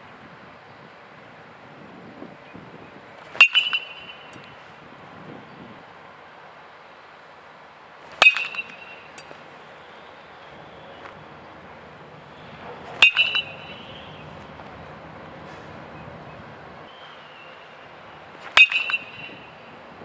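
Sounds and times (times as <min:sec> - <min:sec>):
baseball hit off metal bat: 0:03.3 - 0:04.6, 0:08.2 - 0:09.3, 0:12.9 - 0:14.0, 0:18.4 - 0:19.5.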